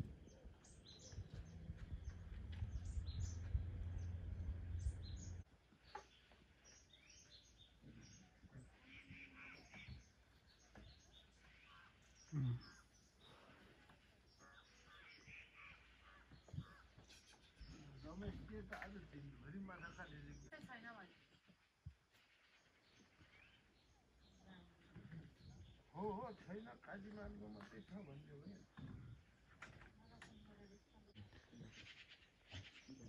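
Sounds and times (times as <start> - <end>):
birds chirping: 0.0 - 33.0
low steady hum: 1.2 - 5.5.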